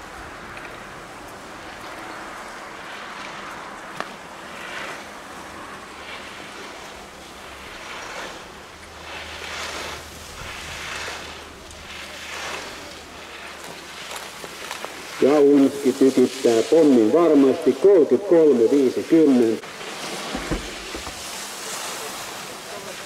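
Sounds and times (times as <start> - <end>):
skis carving on snow: 0.0 - 23.0
sharp knock: 20.3 - 21.2.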